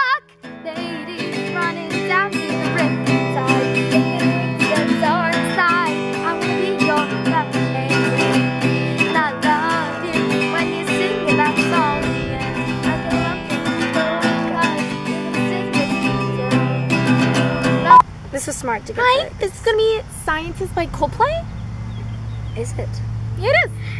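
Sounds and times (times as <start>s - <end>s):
woman singing: 0.0s - 18.0s
acoustic guitar strumming: 0.0s - 23.6s.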